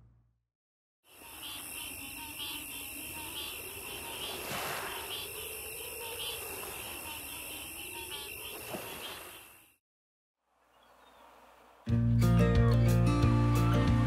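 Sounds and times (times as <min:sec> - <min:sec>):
high-pitched insect drone: 0:01.1 - 0:09.6.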